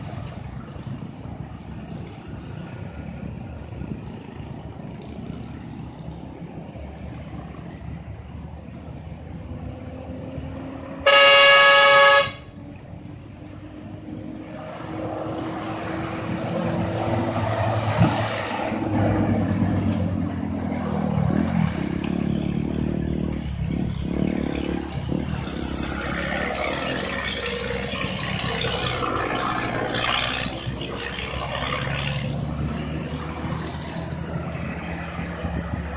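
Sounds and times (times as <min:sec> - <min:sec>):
heavy truck engine: 0:00.0 - 0:35.9
traffic passing: 0:00.0 - 0:35.9
vehicle horn honk: 0:11.0 - 0:12.6.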